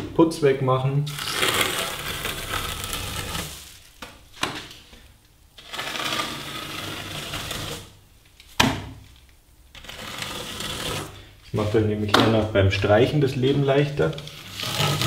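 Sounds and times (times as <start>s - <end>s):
metal trowel scraping plaster: 1.1s - 3.7s, 5.6s - 8.0s, 9.8s - 11.8s, 14.0s - 15.0s.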